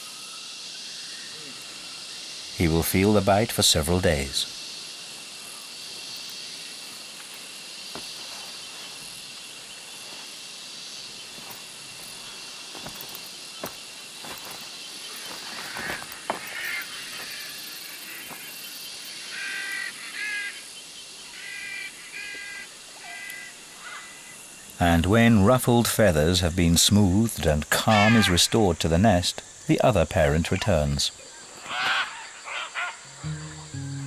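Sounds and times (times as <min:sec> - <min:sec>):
insects chorus with high whine: 0:00.0 - 0:34.0
pitched bird calls: 0:15.0 - 0:18.6.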